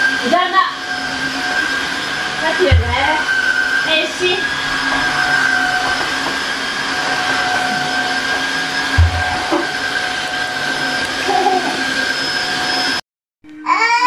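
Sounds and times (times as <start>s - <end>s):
floor washer motor hum and whine: 0.0s - 13.0s
low thump: 2.6s - 3.2s, 8.9s - 9.6s.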